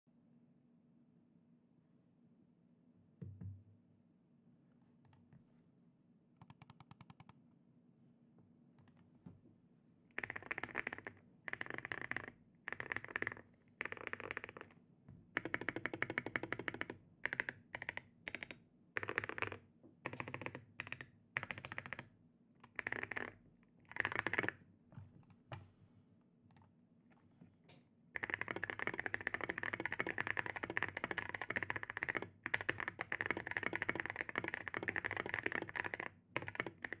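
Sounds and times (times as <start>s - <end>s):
keyboard stabilized keys clicking: 6.4s - 7.3s, 15.4s - 22.0s, 28.2s - 37.0s
fast typing on keyboard: 10.2s - 14.8s, 15.4s - 24.6s, 28.2s - 37.0s.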